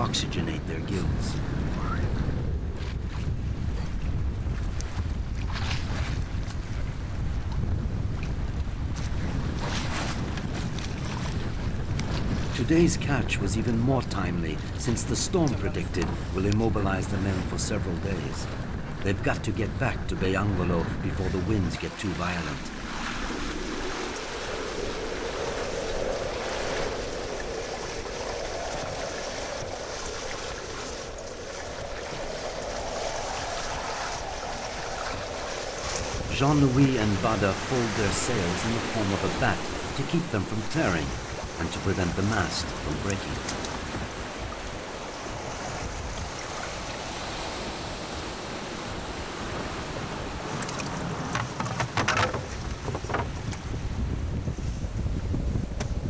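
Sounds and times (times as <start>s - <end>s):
sea water rushing along hull: 0.0s - 56.0s.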